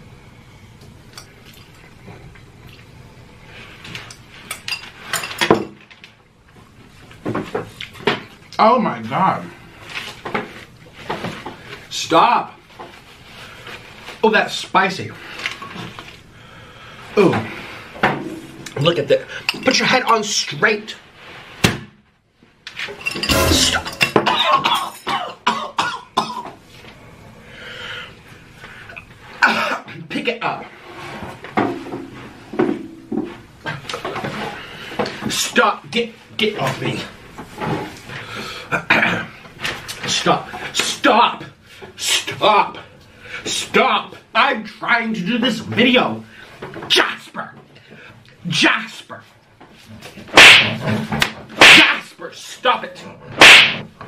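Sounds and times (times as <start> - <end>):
man coughing: 24.3 - 26.5, 29.4 - 29.9, 38.7 - 39.3.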